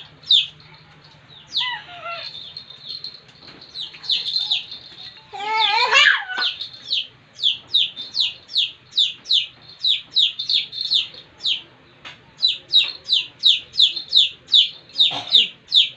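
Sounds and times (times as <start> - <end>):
chick peeping: 12.4 - 15.9.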